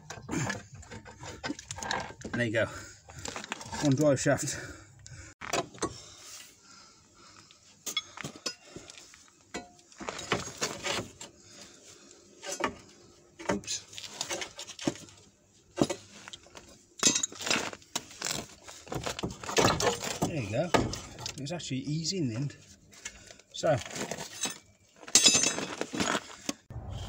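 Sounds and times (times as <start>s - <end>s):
metal tools clinking: 17.0s - 17.6s, 24.0s - 26.2s.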